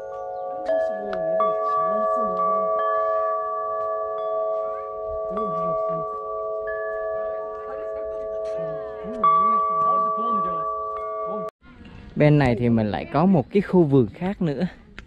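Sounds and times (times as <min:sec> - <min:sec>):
wind chime ringing: 0:00.0 - 0:11.5.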